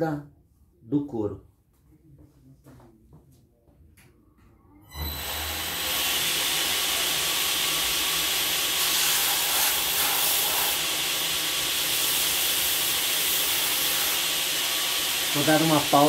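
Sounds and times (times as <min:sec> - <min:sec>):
electric sander hissing: 0:05.0 - 0:16.0.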